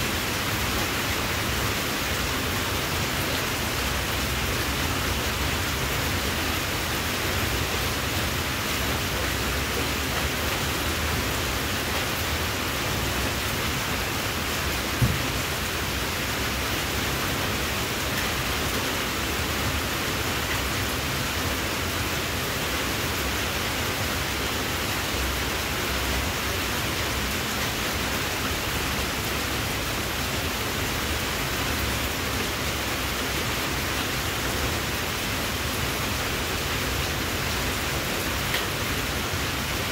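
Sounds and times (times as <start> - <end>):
short knock: 15.0 - 15.3.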